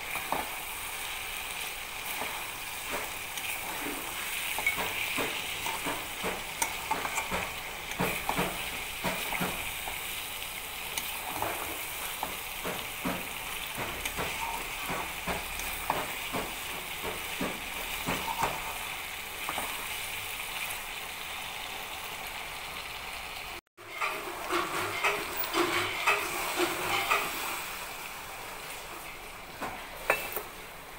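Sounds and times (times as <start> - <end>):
chicken sizzling in a pan: 0.0 - 30.9
steel spatula scraping a pan: 0.1 - 10.1, 10.9 - 19.9, 23.8 - 27.7.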